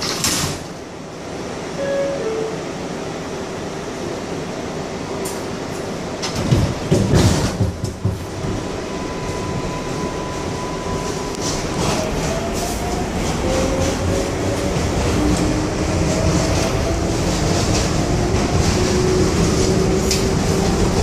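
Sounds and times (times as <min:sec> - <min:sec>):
subway train rumble: 0:00.0 - 0:21.0
train car knocks and jolts: 0:06.2 - 0:08.7.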